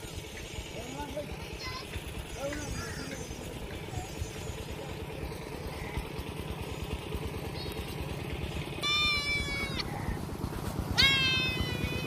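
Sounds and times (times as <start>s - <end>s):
lamb bleating: 8.8s - 9.9s.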